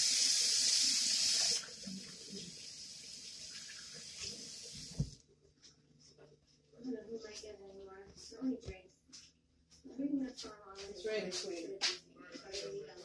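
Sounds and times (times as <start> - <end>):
kitchen tap running: 0.0 - 5.2.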